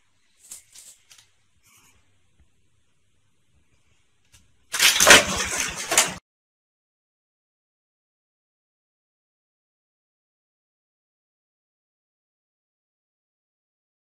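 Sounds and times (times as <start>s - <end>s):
shelves clattering: 4.8s - 6.2s.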